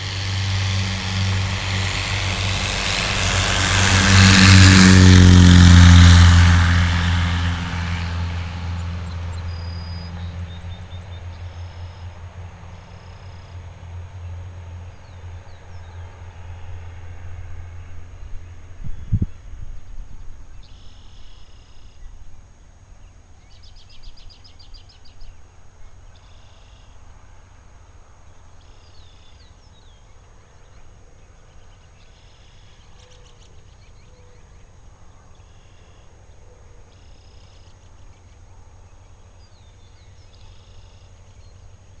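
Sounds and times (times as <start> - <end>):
steady low rumble: 0.0 - 11.7.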